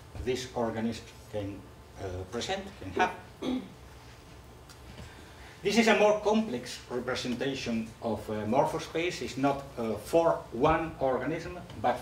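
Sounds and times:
man speaking: 0.2s - 3.3s, 5.6s - 12.0s.

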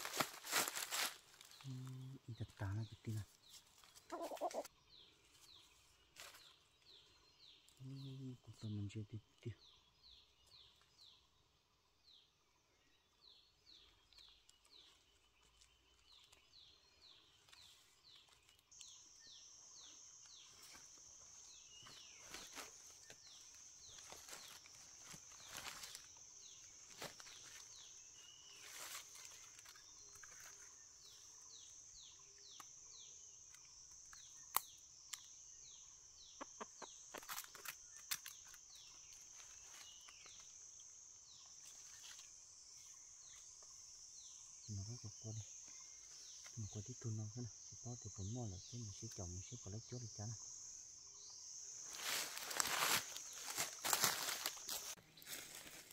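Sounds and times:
dry leaves rustling: 0.0s - 1.7s, 21.8s - 30.7s, 51.9s - 55.9s.

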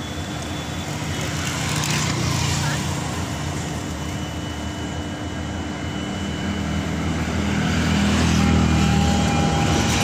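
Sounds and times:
train coaches rolling past: 6.6s - 10.0s.

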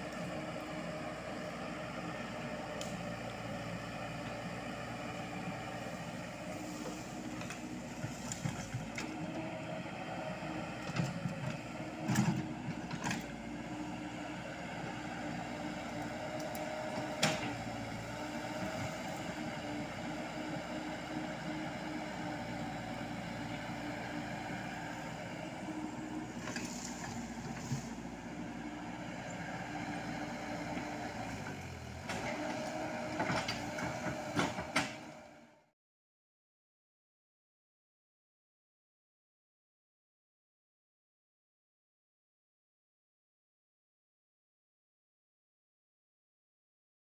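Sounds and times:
excavator diesel engine running: 0.0s - 35.6s.

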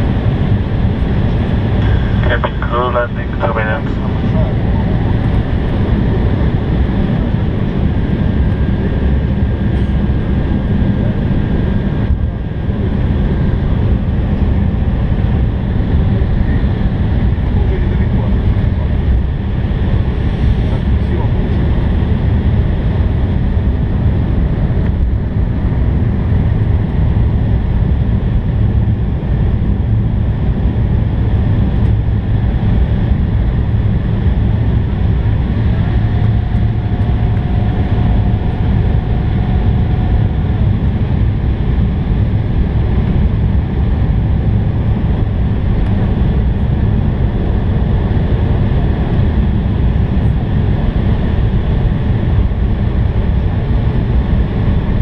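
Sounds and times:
rushing airflow: 0.0s - 15.1s
jet engine drone: 0.0s - 55.0s.

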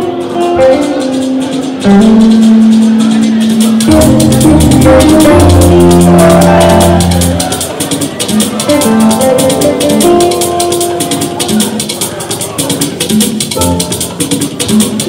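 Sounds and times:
fast shaker rhythm: 0.0s - 15.0s
sustained keyboard notes: 0.0s - 15.0s
bass line: 0.3s - 12.2s.

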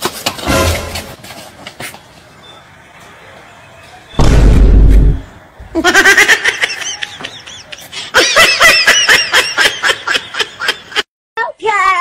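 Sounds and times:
loud boom: 4.2s - 5.3s.

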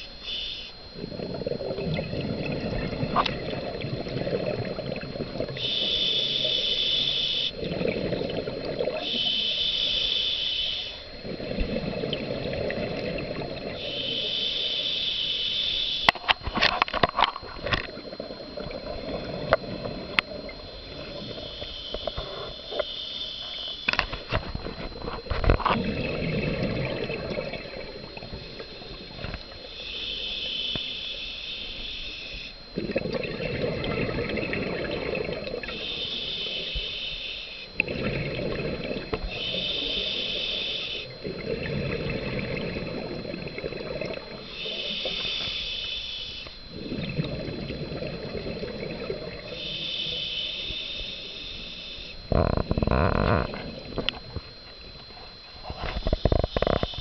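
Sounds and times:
regulator hissing inhale: 0.0s - 0.8s, 5.5s - 7.7s, 8.9s - 13.0s, 13.6s - 16.2s, 20.8s - 24.0s, 29.6s - 32.6s, 35.4s - 43.4s, 44.2s - 47.2s, 48.4s - 53.7s
bubbling exhale underwater: 0.0s - 9.6s, 11.1s - 14.8s, 16.6s - 22.8s, 23.5s - 30.6s, 32.5s - 37.0s, 37.6s - 45.4s, 46.5s - 51.2s, 52.1s - 54.7s, 55.6s - 57.0s.

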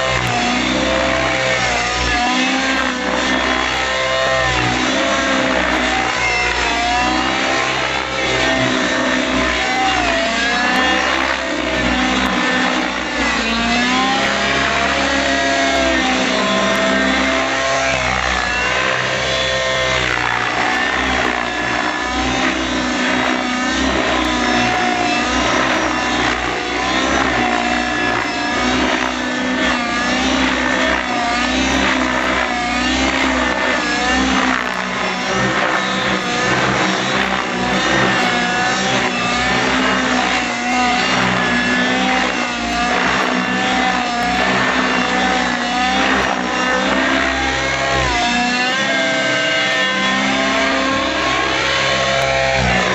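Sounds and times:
rc helicopter motor and rotor whine: 0.0s - 52.9s.

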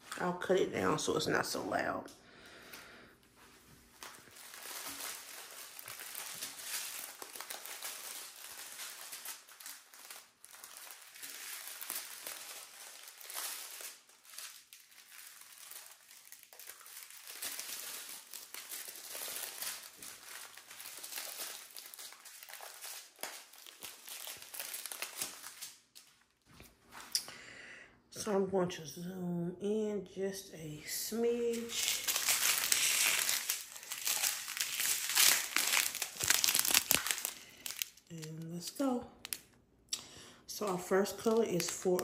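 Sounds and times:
packaging crinkling: 3.8s - 26.5s, 31.3s - 39.6s, 40.7s - 42.0s.

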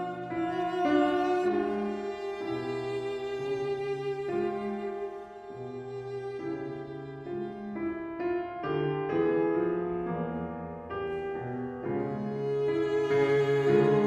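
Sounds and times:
bowed viola notes: 0.0s - 8.1s, 12.0s - 14.0s
piano chords: 0.0s - 14.0s.

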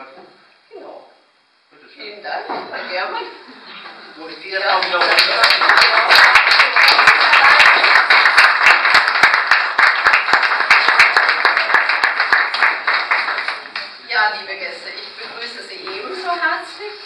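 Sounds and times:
audience applauding: 4.6s - 14.0s.

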